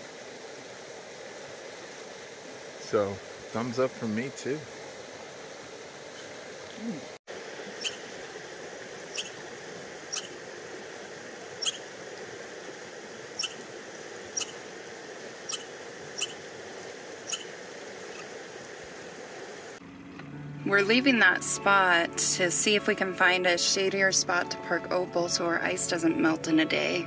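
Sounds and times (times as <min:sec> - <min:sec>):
background hiss: 0:00.0 - 0:19.8
squirrel high-pitched calls: 0:07.7 - 0:08.1, 0:09.0 - 0:09.4, 0:10.0 - 0:10.4, 0:11.6 - 0:12.0, 0:13.4 - 0:13.7, 0:14.3 - 0:14.7, 0:15.4 - 0:16.5, 0:17.2 - 0:18.3.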